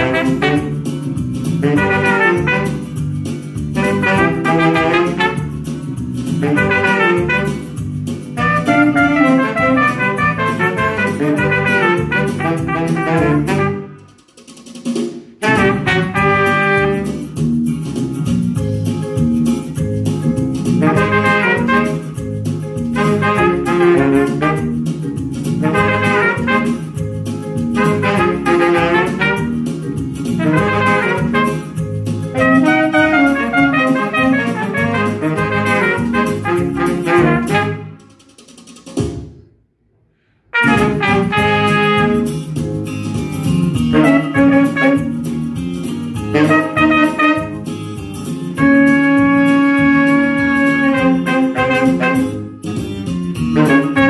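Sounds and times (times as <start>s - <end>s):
tenor saxophone: 0.0s - 0.9s, 1.6s - 3.0s, 3.8s - 5.6s, 6.4s - 7.8s, 8.4s - 14.1s, 15.4s - 17.4s, 20.8s - 22.1s, 23.0s - 24.8s, 25.6s - 26.9s, 27.8s - 29.6s, 30.4s - 38.0s, 40.6s - 42.4s, 43.9s - 45.3s, 46.3s - 47.7s, 48.6s - 52.6s, 53.5s - 54.0s
trumpet: 0.0s - 1.0s, 1.6s - 3.0s, 3.7s - 5.7s, 6.4s - 7.8s, 8.4s - 14.2s, 15.4s - 17.4s, 20.8s - 22.2s, 23.0s - 24.9s, 25.6s - 27.0s, 27.8s - 29.8s, 30.4s - 38.1s, 40.5s - 42.5s, 43.9s - 45.3s, 46.2s - 47.8s, 48.6s - 52.6s, 53.5s - 54.0s
backing track with drums: 0.0s - 39.6s, 40.6s - 54.0s.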